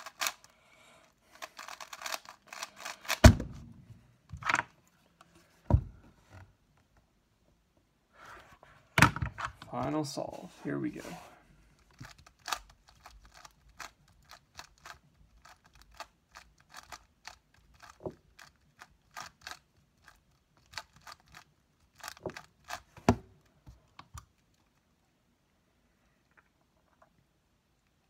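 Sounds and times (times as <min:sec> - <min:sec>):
speed cube clicking: 0:00.0 - 0:00.5, 0:01.3 - 0:03.3, 0:11.8 - 0:22.9.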